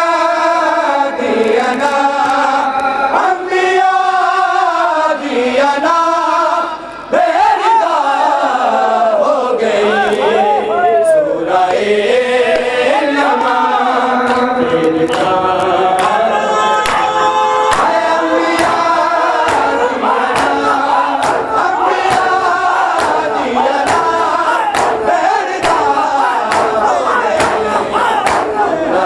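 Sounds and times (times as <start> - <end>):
crowd chanting: 0.0 - 29.0
men singing: 0.0 - 29.0
hands beating on chests: 16.8 - 17.1, 17.7 - 28.7.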